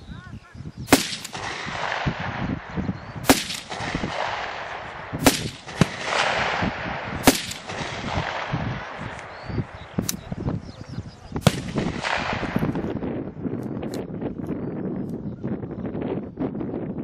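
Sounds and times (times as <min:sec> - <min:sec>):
rifle shots echoing: 0:00.9 - 0:10.3, 0:11.4 - 0:12.9.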